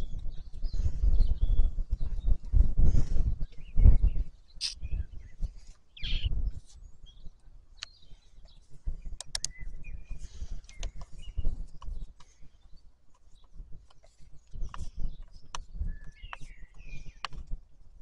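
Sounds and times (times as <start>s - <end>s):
birds chirping: 4.5s - 5.2s, 5.9s - 6.3s.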